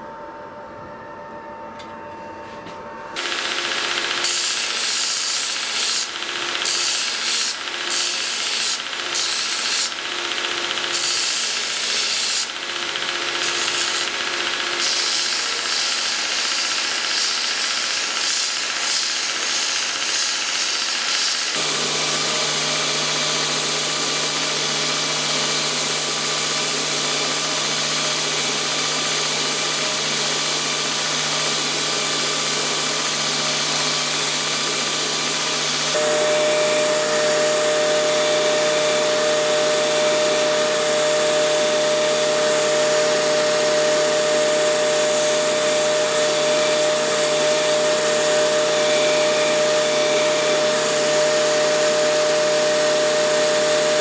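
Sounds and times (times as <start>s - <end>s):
steady whine: 0.0s - 9.2s, 30.0s - 54.0s
machine hum: 0.0s - 18.5s, 21.5s - 54.0s
metal grinding on belt grinder: 3.2s - 54.0s.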